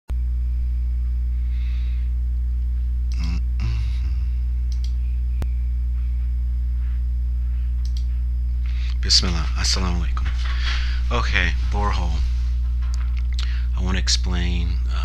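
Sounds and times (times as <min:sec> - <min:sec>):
electrical hum: 0:00.1 - 0:15.0
faint clicks: 0:04.7 - 0:05.5, 0:07.8 - 0:08.2.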